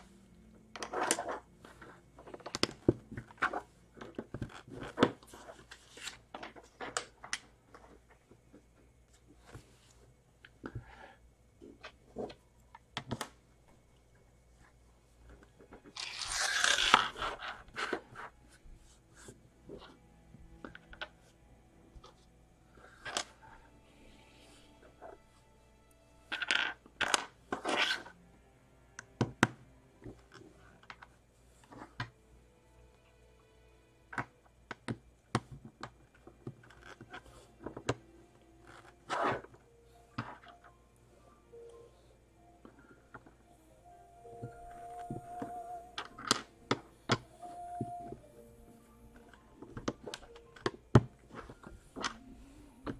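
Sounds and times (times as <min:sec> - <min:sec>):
plastic pieces scraping rustle: 0:15.4 - 0:18.4.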